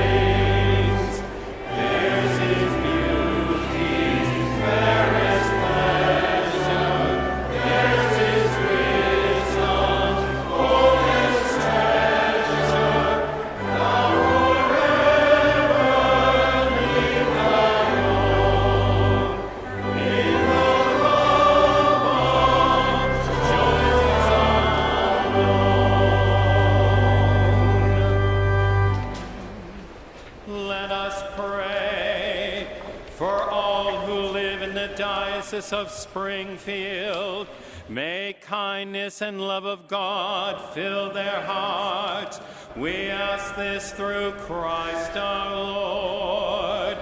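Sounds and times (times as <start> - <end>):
church choir singing: 0.0 - 29.9, 30.5 - 47.0
instrumental bass accompaniment: 10.8 - 30.2.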